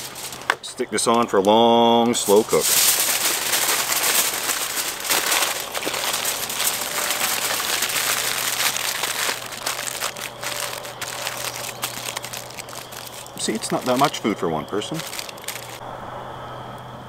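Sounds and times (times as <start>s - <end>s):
aluminium foil crinkling: 0.0s - 15.8s.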